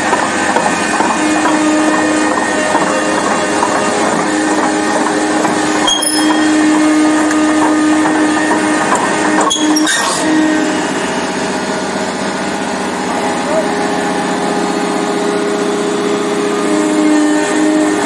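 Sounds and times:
steady machine drone: 0.0s - 18.0s
steel tracks clanking on concrete: 0.0s - 18.0s.

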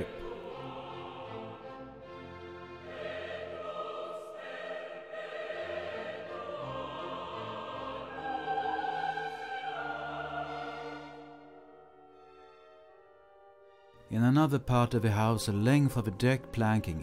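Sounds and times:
operatic singing: 0.0s - 12.4s
orchestra: 0.0s - 17.0s.

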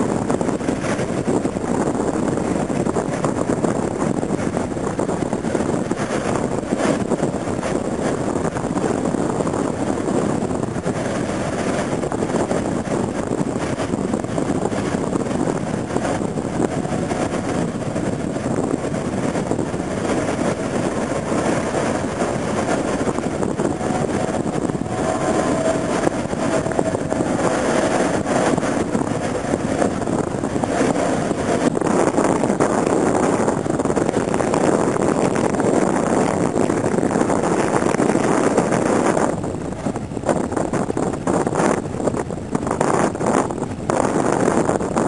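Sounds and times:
ocean surf breaking: 4.0s - 36.5s.

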